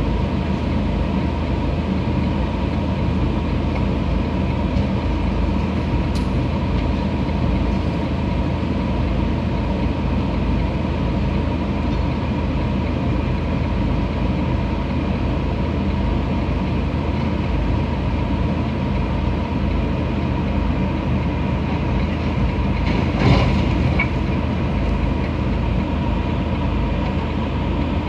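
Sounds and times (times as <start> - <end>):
low engine rumble: 0.0 - 28.0.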